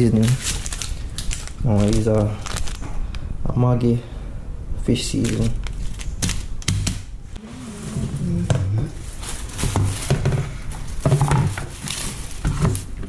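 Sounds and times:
plastic bag rustling: 0.0s - 3.2s, 4.9s - 6.6s, 7.4s - 13.0s
low voice murmuring: 7.5s - 9.0s.

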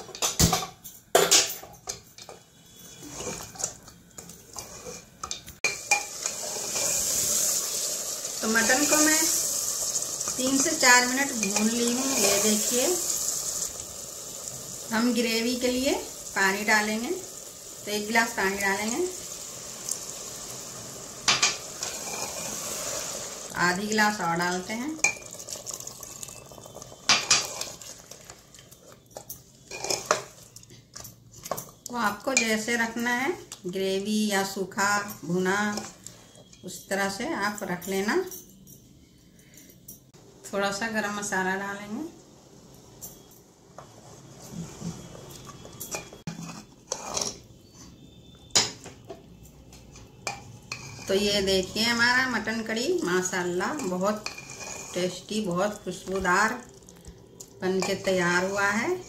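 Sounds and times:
spoon scraping a pot: 1.9s - 7.6s, 10.3s - 12.7s, 21.4s - 23.1s, 26.2s - 30.6s, 44.4s - 48.0s, 49.9s - 51.4s, 53.1s - 56.6s
meat sizzling: 5.6s - 28.8s, 50.4s - 59.0s
metal utensils clinking on a pot: 10.0s - 12.9s, 24.5s - 33.1s, 45.5s - 47.4s, 53.0s - 57.0s, 57.6s - 59.0s.

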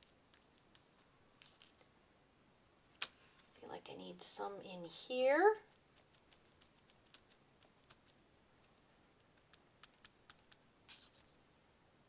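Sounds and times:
sponge brushing paper: 5.6s - 8.2s.

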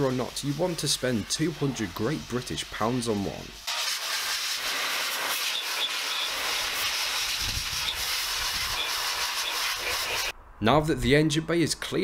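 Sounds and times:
blower rushing air: 3.8s - 10.4s.

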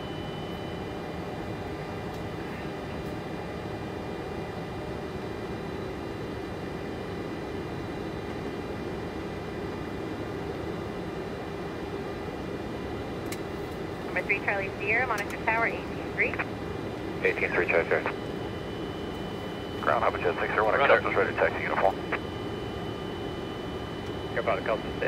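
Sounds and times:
idling jet engines hum: 0.0s - 25.0s
faint high whines: 14.3s - 25.0s.

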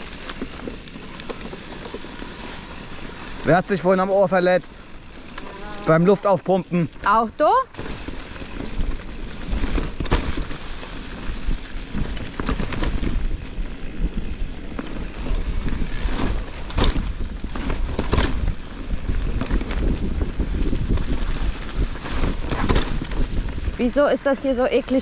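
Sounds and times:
bike knocks and rattles: 0.0s - 3.3s, 6.5s - 23.8s
wind buffeting microphone: 7.5s - 25.0s.

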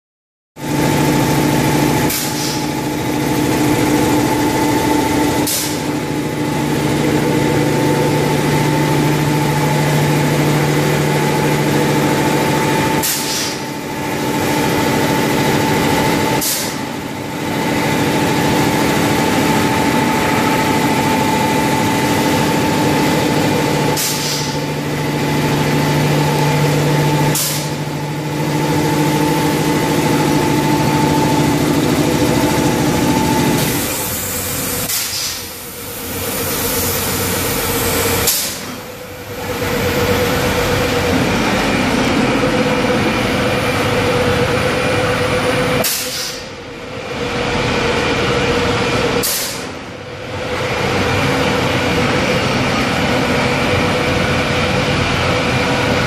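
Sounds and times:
machinery humming and whining: 0.6s - 56.0s
air hissing: 13.0s - 13.7s, 23.9s - 24.6s, 27.3s - 27.8s, 33.5s - 38.9s, 45.8s - 46.6s, 49.2s - 49.8s.

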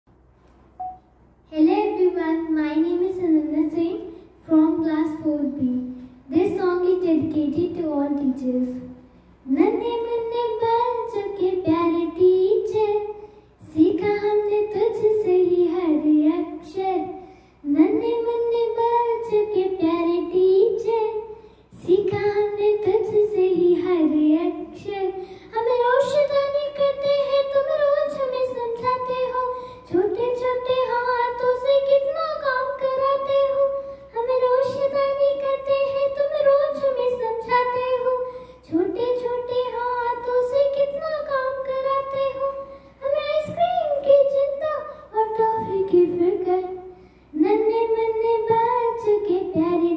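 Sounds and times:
girl singing into microphone: 0.8s - 49.9s.

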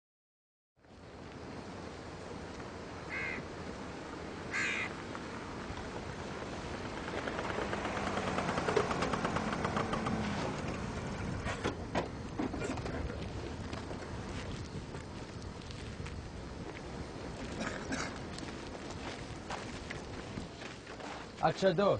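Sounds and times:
motor scooter engines humming: 2.3s - 14.9s
crow cawing: 3.1s - 3.5s, 4.5s - 5.0s.

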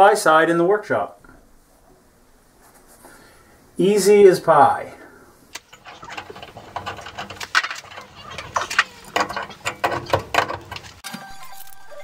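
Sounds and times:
metal pipe clicks and scrapes: 5.5s - 11.0s.

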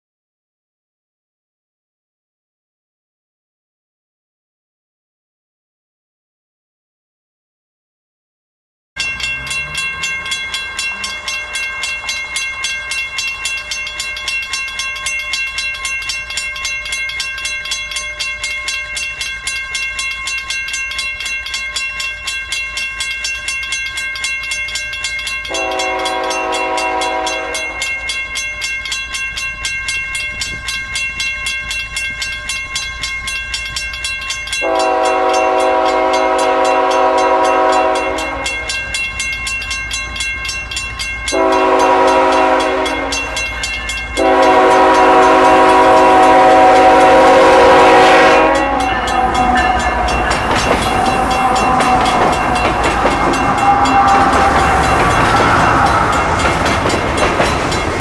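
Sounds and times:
locomotive horn blasts: 25.5s - 28.1s, 34.6s - 38.9s, 41.3s - 43.5s, 44.2s - 56.6s.

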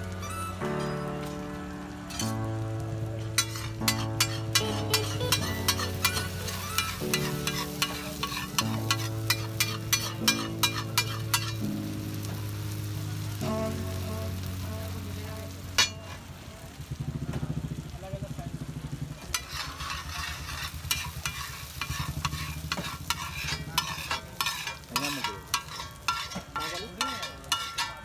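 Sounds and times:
egg frying on griddle: 0.0s - 28.0s
metal spatula scraping griddle: 2.0s - 14.4s, 15.0s - 16.5s, 19.2s - 28.0s
steel tumbler mashing: 3.4s - 11.7s, 19.3s - 28.0s.

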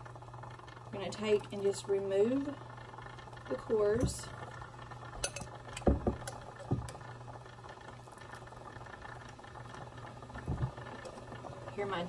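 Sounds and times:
metal tongs clinking on pots: 5.2s - 5.6s.

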